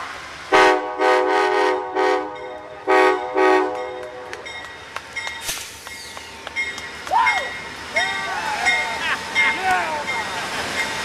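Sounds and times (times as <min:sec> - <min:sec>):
train horn short blasts: 0:00.5 - 0:04.2.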